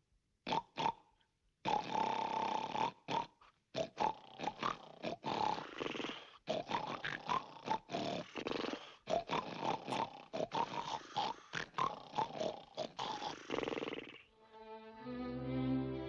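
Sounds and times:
men snoring: 1.7 - 3.3, 4.0 - 14.3.

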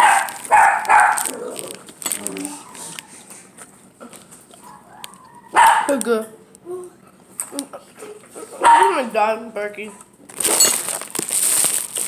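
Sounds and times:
dog barking: 0.0 - 1.3, 4.6 - 5.9, 8.6 - 9.0.

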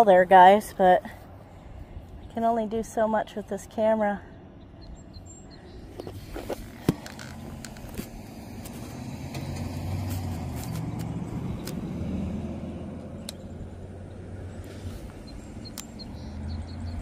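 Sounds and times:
vehicle passing: 7.0 - 17.0
sharp clicks: 15.2 - 16.1.

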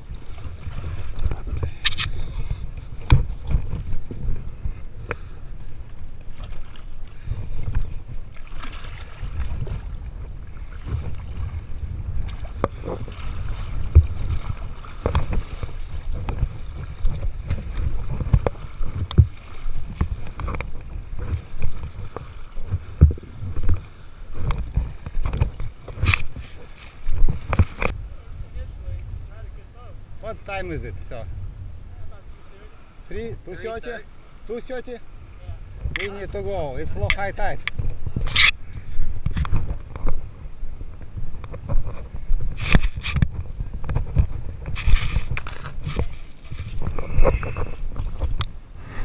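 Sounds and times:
knocks and splashes: 0.0 - 4.4, 6.2 - 28.0
water sloshing and lapping: 0.0 - 28.0, 35.6 - 49.0.

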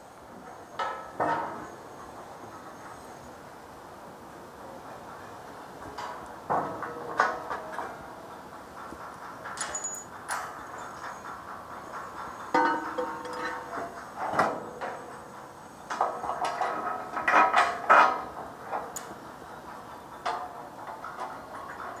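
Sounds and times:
steel bar clanking on steel beam: 12.5 - 15.2.

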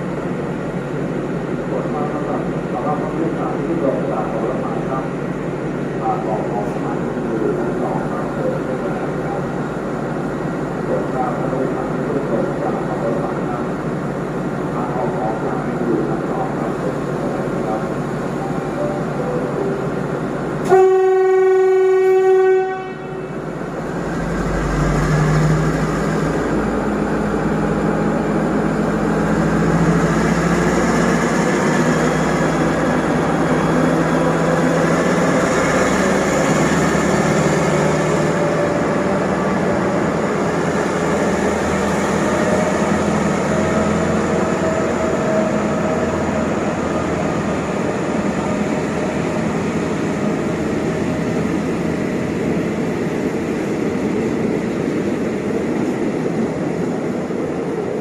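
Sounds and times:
locomotive horn blast: 20.6 - 23.4.

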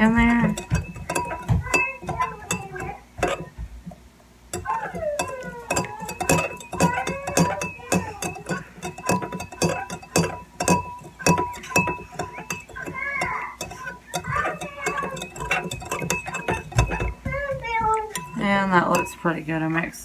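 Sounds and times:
metal spoon clinking in ceramic mug: 0.0 - 3.5, 4.5 - 19.4.

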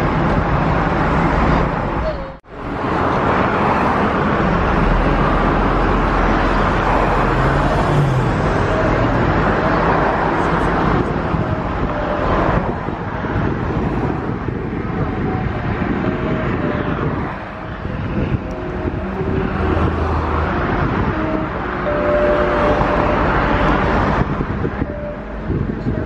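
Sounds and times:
road traffic rumble: 0.0 - 26.0.

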